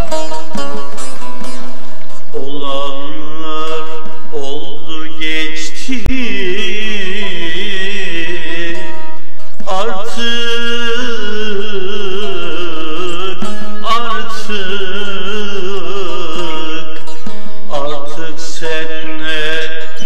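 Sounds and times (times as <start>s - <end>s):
plucked string accompaniment: 0.0s - 4.6s, 5.3s - 20.0s
person singing wavering notes: 6.1s - 20.0s.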